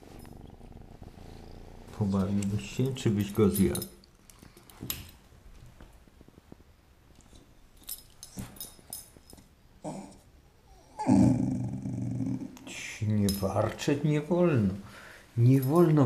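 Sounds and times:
dog growling low: 0.0 - 2.2, 9.8 - 12.6.

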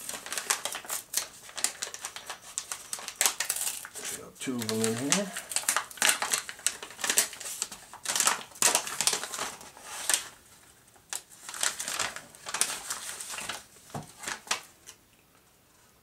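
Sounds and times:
paper crinkling and rustling: 0.0 - 15.0.

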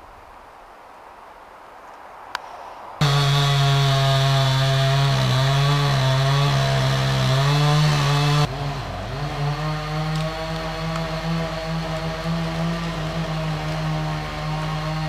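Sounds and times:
chainsaw running at high revs: 3.0 - 15.0.

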